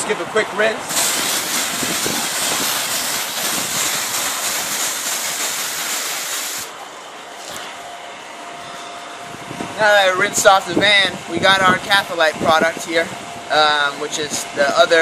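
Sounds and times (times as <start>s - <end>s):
pressure washer spraying water: 0.9s - 6.8s.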